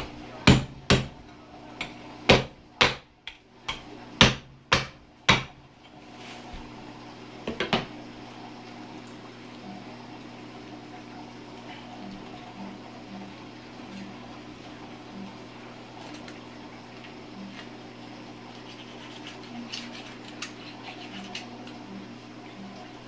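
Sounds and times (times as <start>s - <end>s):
low steady hum: 0.0s - 23.0s
cleaver chopping on cutting board: 0.4s - 1.2s, 1.8s - 5.6s.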